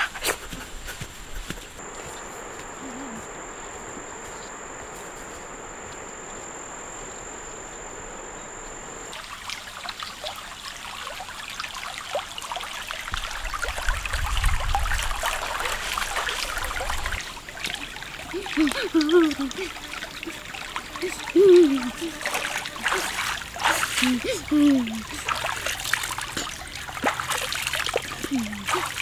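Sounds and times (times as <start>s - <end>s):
even hiss: 0.0s - 29.0s
low rumbling: 1.8s - 9.1s
high insect trill: 1.8s - 29.0s
stream trickling and splashing: 9.0s - 29.0s.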